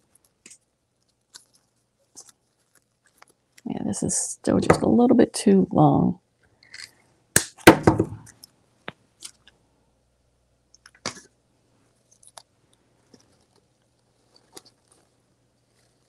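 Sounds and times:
stem rustling: 0.0 - 4.1, 13.0 - 16.0.

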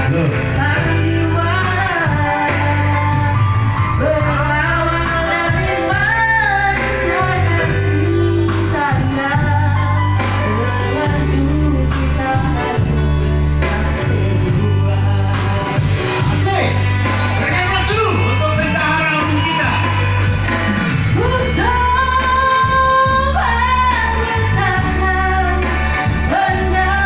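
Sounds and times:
man singing along: 0.0 - 3.4, 12.1 - 20.1
held bass notes: 0.0 - 27.0
keyboard: 0.0 - 27.0
live band backing: 0.0 - 27.0
woman singing through microphone: 0.4 - 16.1, 21.1 - 27.0.

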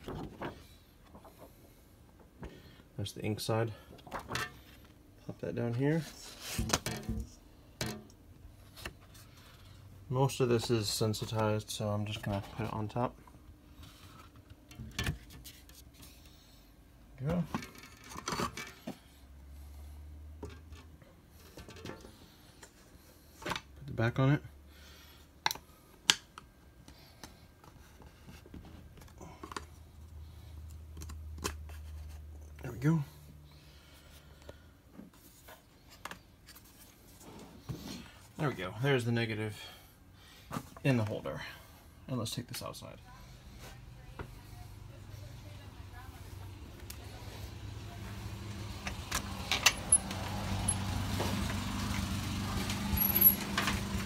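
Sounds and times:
low mechanical hum: 0.0 - 54.0
sharp handling clicks and knocks: 48.8 - 52.0, 52.6 - 54.0.

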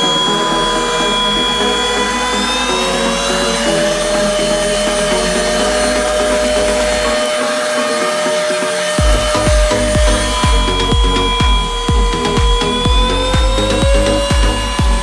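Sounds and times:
background music: 0.0 - 15.0
beat with deep kick drums: 9.0 - 15.0.

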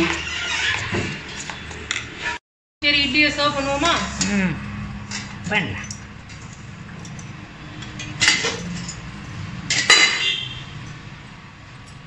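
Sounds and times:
metal lid clanking: 5.1 - 10.4.

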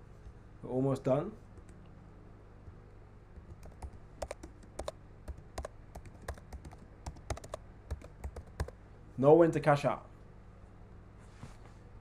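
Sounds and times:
faint low hum: 0.0 - 12.0
keyboard typing: 3.4 - 8.8.

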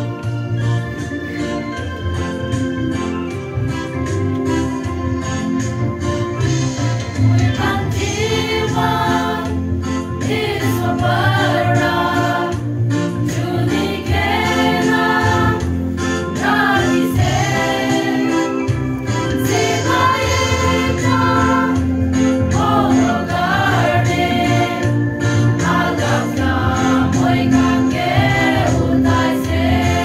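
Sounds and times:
women's choir singing a hymn: 7.3 - 18.6, 19.3 - 30.0.

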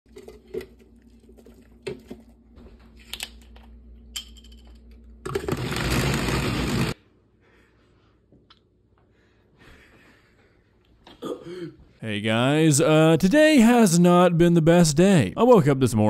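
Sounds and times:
blender running: 5.2 - 7.0.

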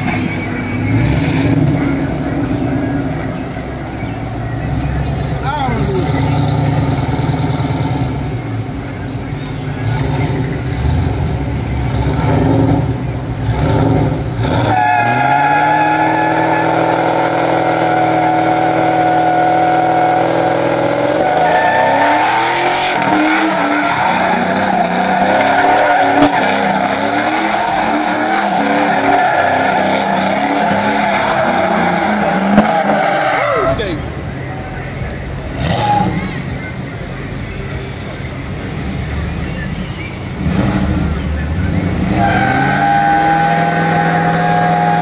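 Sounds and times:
car engine revving: 0.0 - 45.0
tyres squealing: 14.3 - 35.0, 35.6 - 40.4.

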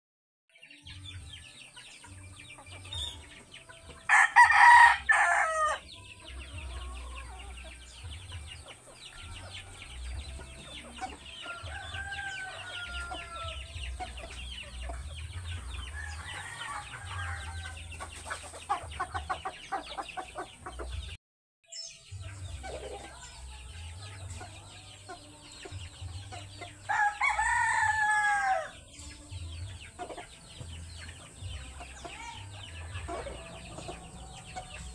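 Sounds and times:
rooster crowing: 11.5 - 13.6, 26.9 - 28.7.

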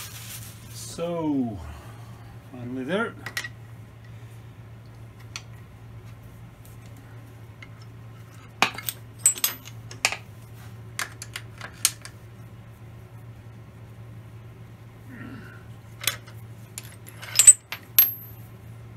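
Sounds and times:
steady low hum: 0.0 - 18.9
metal tools clinking on metal: 8.6 - 9.8, 16.0 - 18.4.

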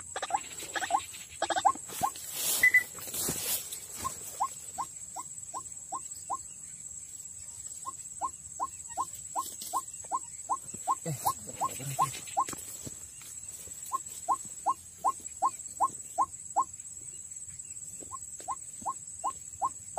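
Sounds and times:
waterhen call: 0.0 - 2.9.

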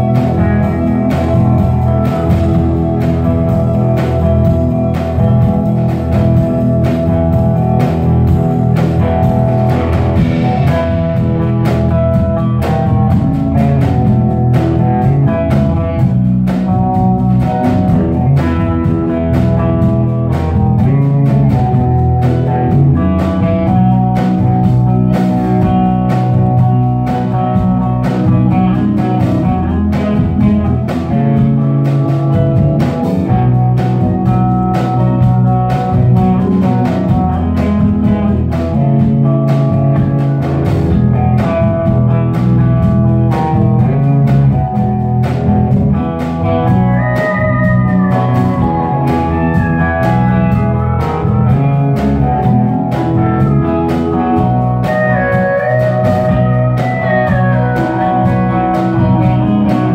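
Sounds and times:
bass guitar: 0.0 - 59.9
drum kit: 0.0 - 59.9
electric guitars: 0.0 - 59.9.

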